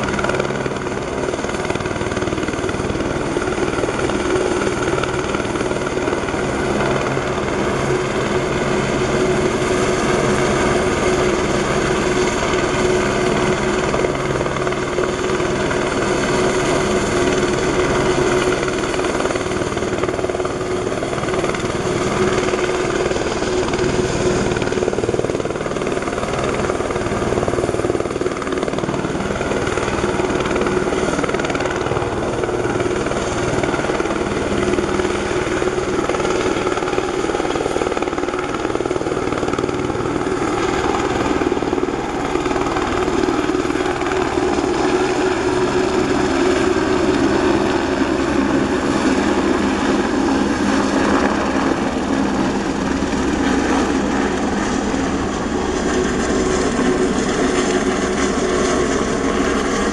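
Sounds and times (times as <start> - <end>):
helicopter hovering overhead: 0.0 - 59.9.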